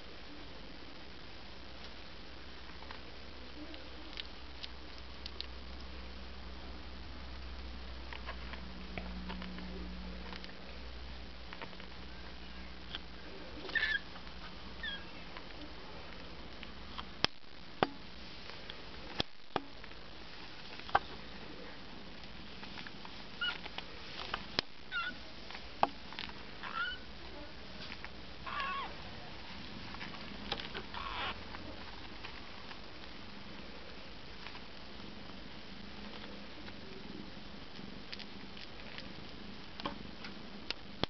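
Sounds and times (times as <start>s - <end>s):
kittens mewing: 13.6s - 14.1s, 14.8s - 15.3s, 24.9s - 25.2s, 26.6s - 27.1s, 28.4s - 29.0s.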